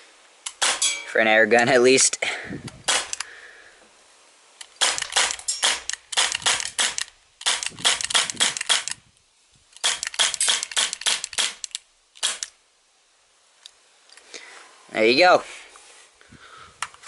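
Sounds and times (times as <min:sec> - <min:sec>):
bb pistol shots: 0:00.5 - 0:01.0, 0:02.8 - 0:03.2, 0:04.8 - 0:09.0, 0:09.8 - 0:12.5.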